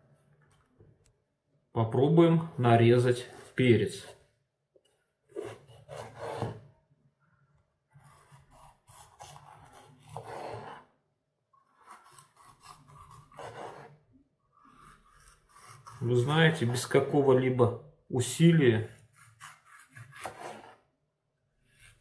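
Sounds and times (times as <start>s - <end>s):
knife sawing through pepper: 5.3s - 6.6s, 8.0s - 10.9s, 11.7s - 16.8s, 18.8s - 20.8s.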